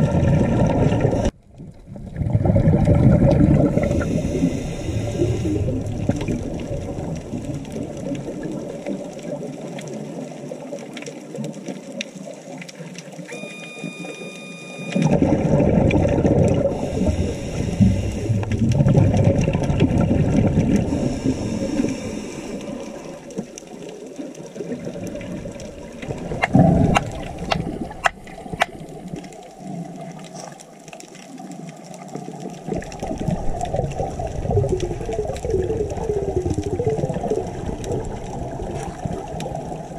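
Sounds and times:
diver exhaling bubbles underwater: 0.0s - 10.4s, 15.0s - 30.6s, 32.2s - 39.9s
short electronic beep: 13.3s - 15.3s.

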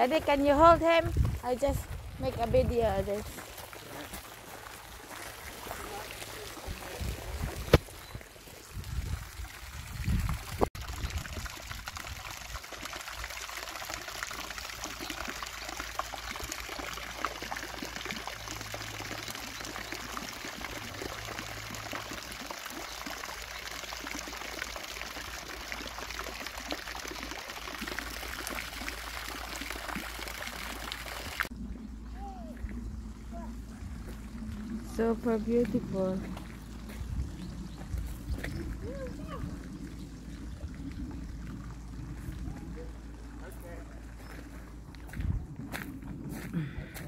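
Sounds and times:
low rumbles on microphone: 0.0s - 3.4s, 5.5s - 12.2s, 31.5s - 47.0s
fountain splashing into pond: 0.0s - 45.8s.

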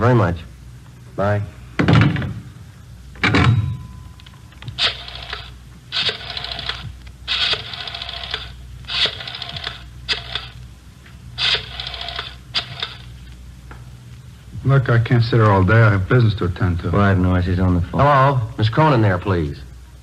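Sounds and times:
rotary dial clicking and whirring: 4.6s - 10.6s, 11.4s - 13.2s.

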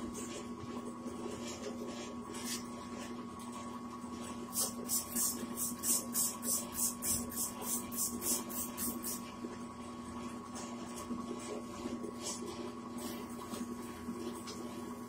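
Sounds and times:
spray bottle hissing sprays: 4.5s - 9.2s.

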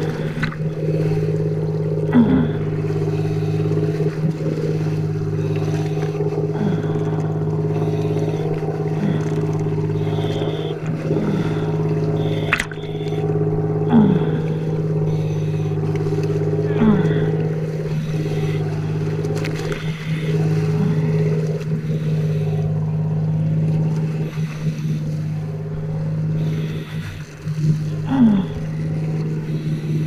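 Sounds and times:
boat engine idling: 0.0s - 30.0s
water splashing against hull: 0.0s - 30.0s.

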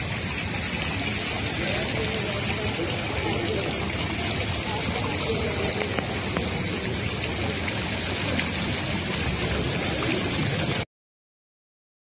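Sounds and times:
rushing outdoor background noise: 0.0s - 10.8s.

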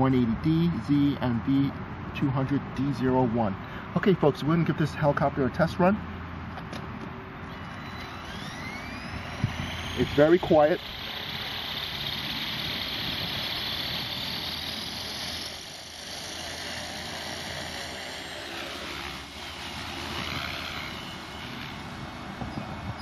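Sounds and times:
rc helicopter motor whine: 7.4s - 23.0s.

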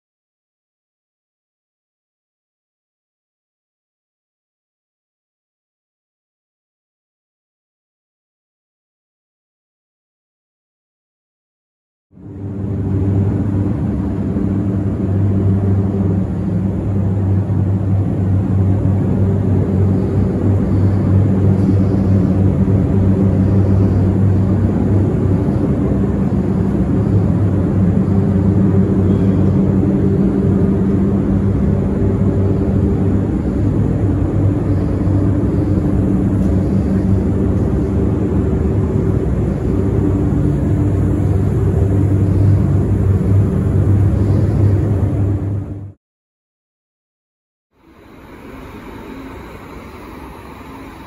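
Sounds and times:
ventilation fans humming: 12.2s - 45.9s, 47.8s - 51.0s.

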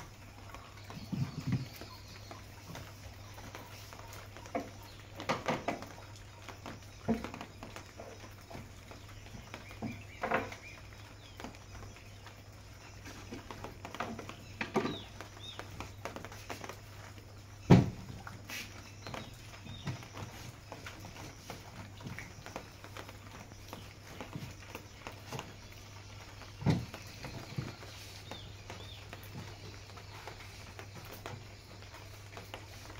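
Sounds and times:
knocks and rubbing on wood: 4.5s - 6.0s, 9.3s - 10.7s, 17.7s - 23.2s, 26.6s - 31.4s.

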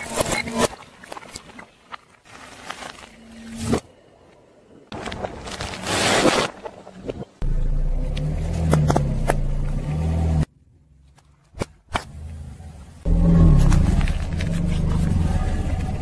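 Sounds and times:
car engine running low: 7.4s - 10.5s, 12.2s - 16.0s.

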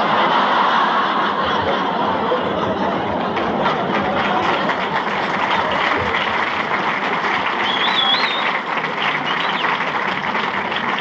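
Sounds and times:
audience laughing: 0.0s - 11.0s
audience applauding: 2.5s - 11.0s.

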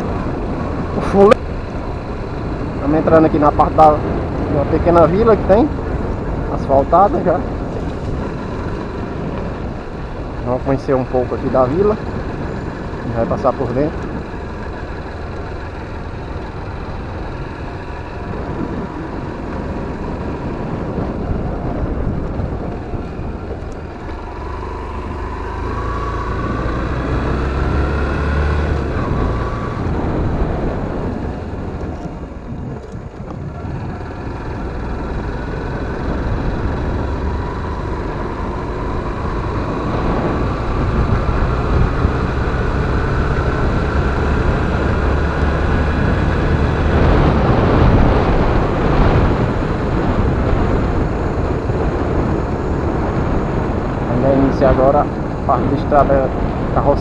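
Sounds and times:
motorcycle engine running: 0.0s - 57.0s
wind rumbling on microphone: 0.0s - 57.0s.

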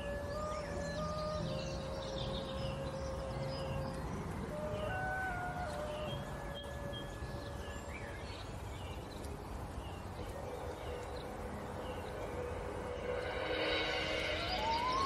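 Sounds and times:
small birds chirping: 0.2s - 15.0s
steady low rumble: 9.5s - 15.0s
faint held tone: 12.1s - 15.0s.

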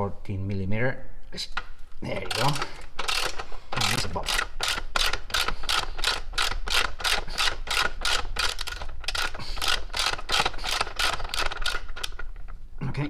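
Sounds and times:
socket ratchet clicking: 2.3s - 12.2s.

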